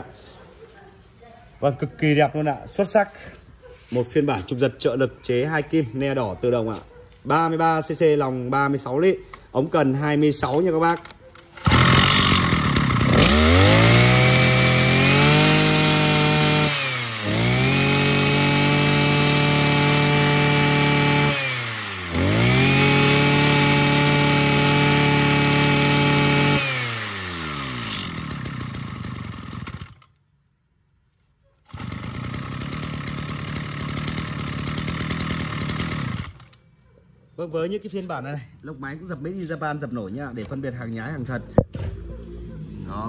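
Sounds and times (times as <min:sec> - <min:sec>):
two-stroke engine revving: 0:11.6 - 0:30.1, 0:31.7 - 0:36.5.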